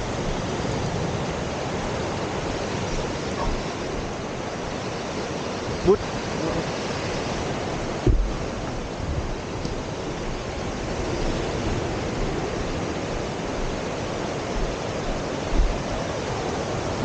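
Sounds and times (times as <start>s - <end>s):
wind over microphone: 0.0s - 17.0s
low bumps: 8.0s - 9.8s.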